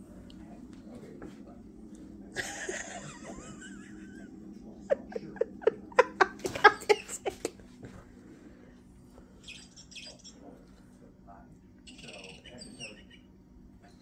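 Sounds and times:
person laughing: 2.4 - 7.6
high wavering chirp: 9.4 - 10.5, 11.8 - 14.0.

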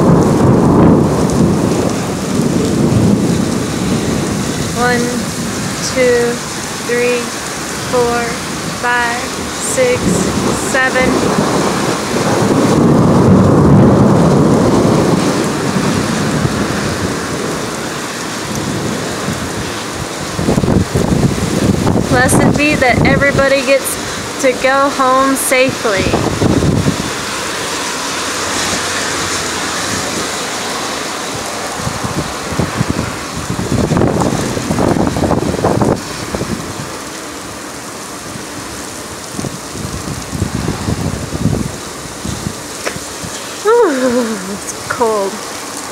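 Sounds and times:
thunder rumbling: 0.0 - 37.1, 38.3 - 45.9
heavy rain: 0.0 - 45.9
tyre hiss on wet road: 27.0 - 33.0.

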